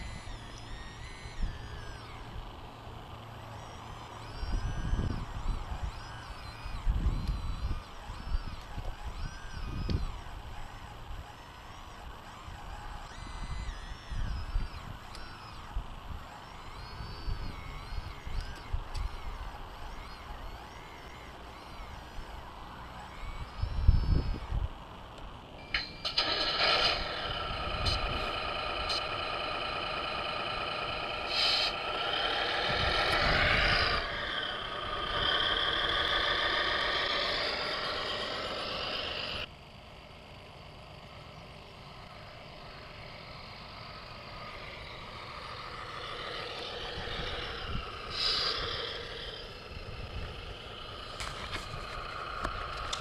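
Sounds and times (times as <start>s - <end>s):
simulated diesel engine revving: 25.7s - 39.5s, 40.3s - 53.0s.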